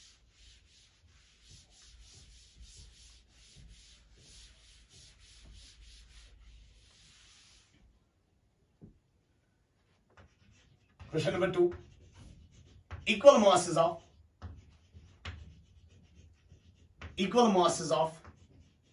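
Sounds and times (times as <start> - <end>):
pen scratching on paper: 10.2 - 18.9.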